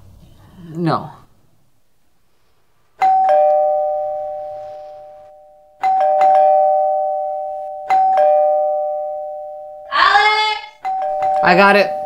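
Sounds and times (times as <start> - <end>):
two-tone doorbell chime: 3.0 - 10.0, 10.8 - 12.0.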